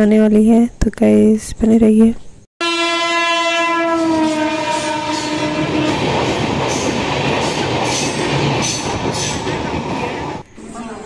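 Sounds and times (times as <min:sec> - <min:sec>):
train horn blast: 0:02.6 - 0:06.9
train coaches rumbling: 0:03.7 - 0:11.0.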